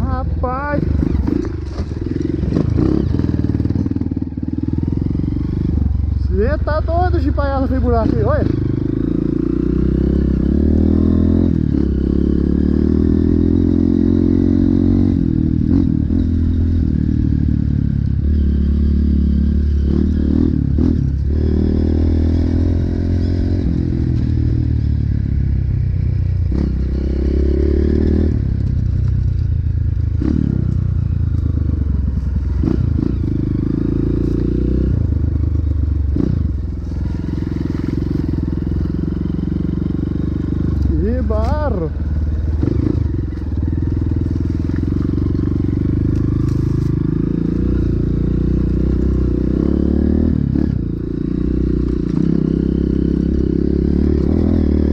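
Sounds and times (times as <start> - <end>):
motorcycle engine revving: 0.0 - 54.9
bike rattling over bumps: 0.8 - 5.2.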